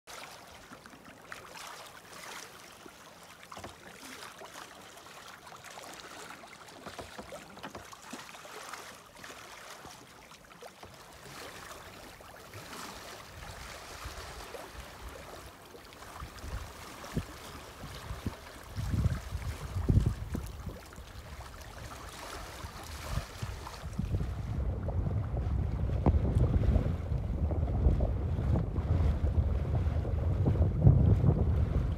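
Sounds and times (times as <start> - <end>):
small splashes: 0.1 - 24.5
water lapping around boat hull: 0.1 - 31.9
low rumble: 24.0 - 31.9.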